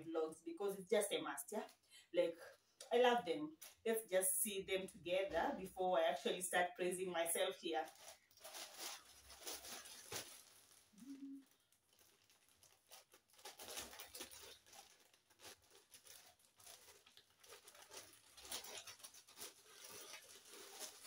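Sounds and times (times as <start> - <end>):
paper bag rustling and crinkling: 7.5 - 21.0
soft clicks of packaging: 7.9 - 21.0.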